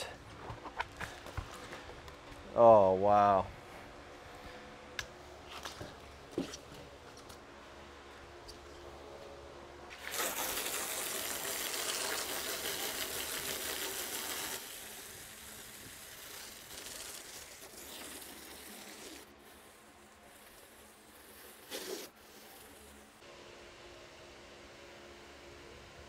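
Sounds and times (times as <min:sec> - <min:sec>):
hose spray nozzle hissing: 0:09.9 - 0:19.7.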